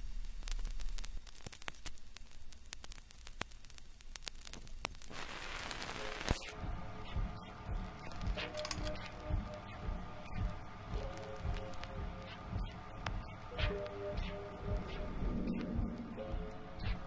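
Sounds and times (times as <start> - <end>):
record static crackle and hiss: 0.0 - 17.0
slowed muffled music with reverb: 5.6 - 17.0
low hum: 6.5 - 17.0.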